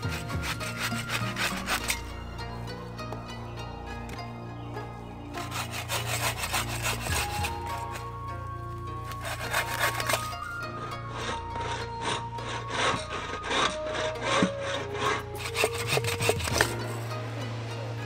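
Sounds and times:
hand saw cutting wood: 0.0 - 2.2, 5.3 - 8.3, 9.0 - 17.1.

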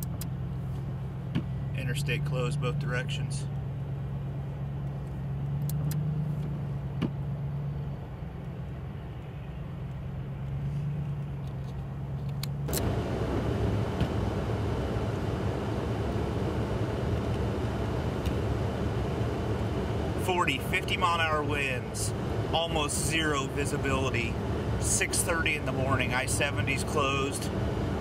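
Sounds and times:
engine idling: 9.6 - 28.0
blizzard wind rushing: 21.8 - 28.0.

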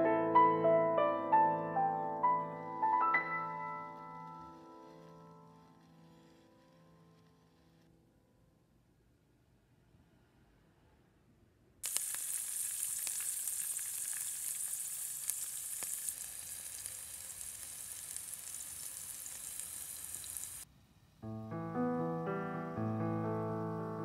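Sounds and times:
piano music: 0.0 - 5.8, 21.2 - 24.0
deep-frying sizzle and crackles: 11.8 - 20.7.

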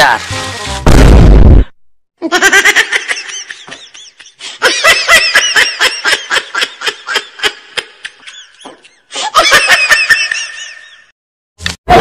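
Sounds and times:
high-pitched comic laughter: 2.2 - 8.6.

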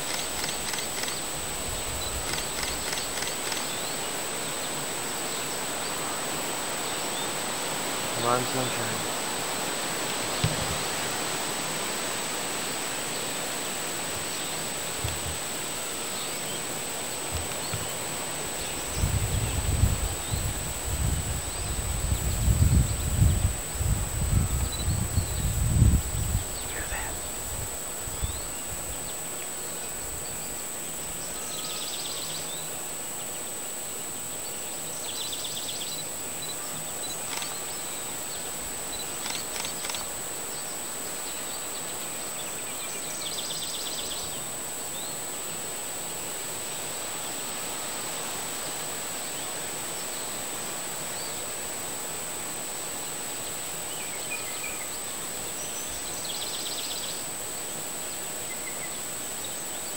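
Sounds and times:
faint clicks: 0.0 - 1.2, 2.2 - 3.8, 37.2 - 37.7, 39.2 - 40.1
distant small bird trill: 0.0 - 4.4
steady hiss: 0.0 - 59.9.

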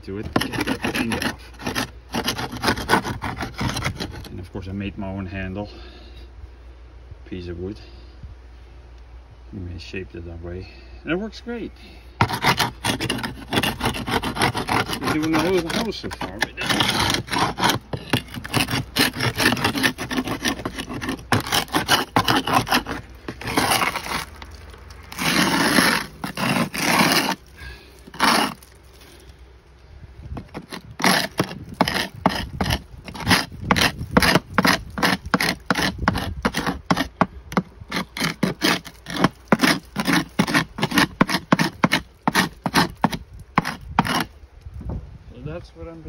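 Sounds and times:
paint scraper scraping wood siding: 0.0 - 4.4, 12.1 - 29.3, 30.3 - 44.4.

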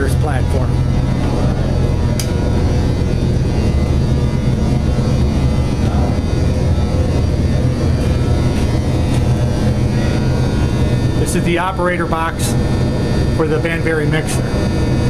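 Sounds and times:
industrial machinery drone: 0.0 - 15.0
sharp click: 2.1 - 2.4.

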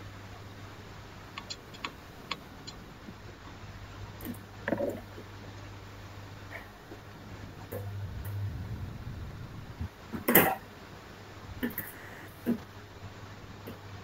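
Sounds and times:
low steady hum: 0.0 - 14.0
faint clicks: 1.4 - 2.8.

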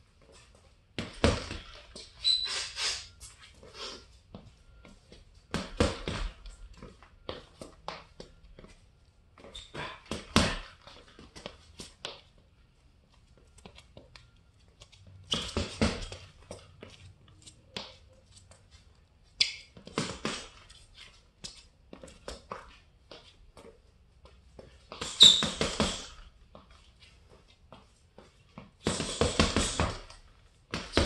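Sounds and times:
gloves punching a bag: 1.0 - 1.8, 5.5 - 6.5, 9.8 - 10.8, 15.4 - 16.3, 19.8 - 20.6, 24.9 - 26.2, 28.8 - 31.0.

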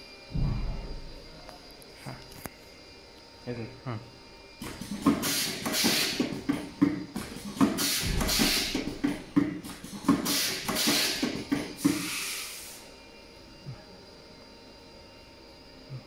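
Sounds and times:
compressed air hissing blasts: 5.0 - 6.5, 7.4 - 12.9.

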